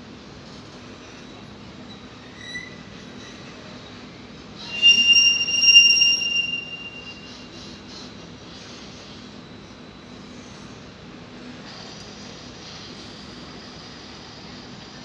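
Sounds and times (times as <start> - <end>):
train wheels squealing on rails: 1.0 - 10.8.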